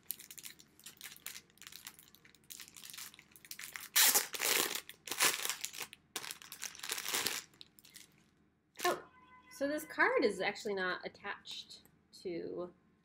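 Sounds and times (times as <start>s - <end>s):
plastic packaging crinkling: 0.0s - 8.2s.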